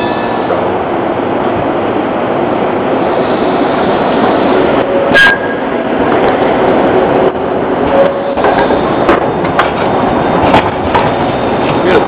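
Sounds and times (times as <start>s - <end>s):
tram wheels rumbling on rails: 0.0s - 12.0s.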